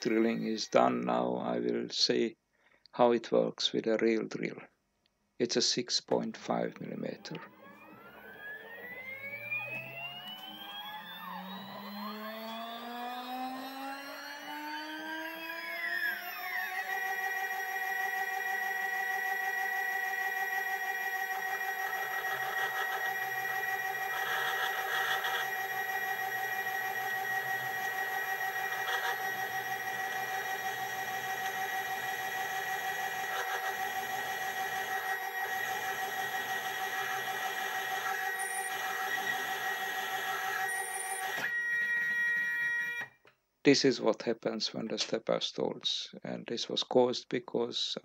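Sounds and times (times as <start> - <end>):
high-pitched motor whine: 0.0 - 0.8, 6.8 - 43.1
drill scraping metal: 16.0 - 43.0.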